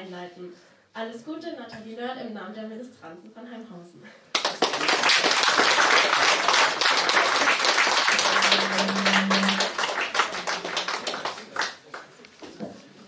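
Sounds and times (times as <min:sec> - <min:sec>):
crowd clapping: 0:04.3 - 0:12.2.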